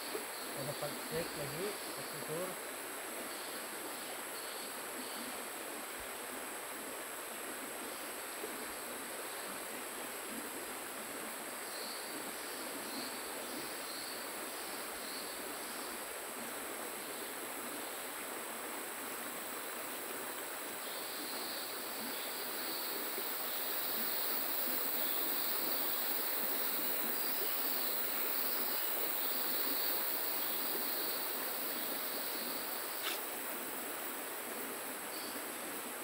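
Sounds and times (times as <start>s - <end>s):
river water rushing: 21.6s - 36.0s.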